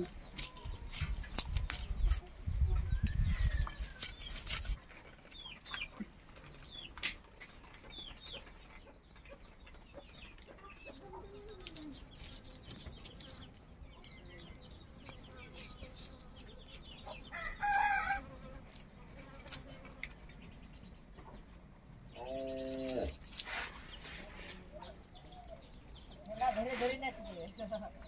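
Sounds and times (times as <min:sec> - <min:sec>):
chickens clucking: 0:00.0 - 0:28.0
knife scraping fish scales: 0:00.2 - 0:02.3, 0:03.6 - 0:04.8, 0:11.5 - 0:13.6, 0:14.3 - 0:20.2, 0:22.8 - 0:24.6.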